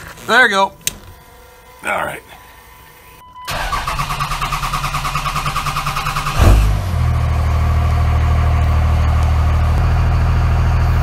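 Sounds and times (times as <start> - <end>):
diesel engine firing and idling: 3.5 - 11.0.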